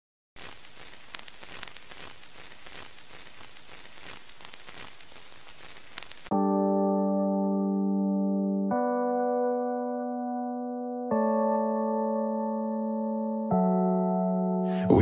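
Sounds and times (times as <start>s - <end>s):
static hiss with crackles: 0.4s - 6.3s.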